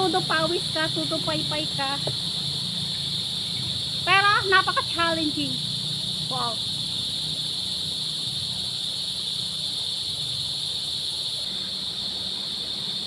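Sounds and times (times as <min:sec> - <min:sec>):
insects droning: 0:00.0 - 0:13.0
low steady rush: 0:00.0 - 0:13.0.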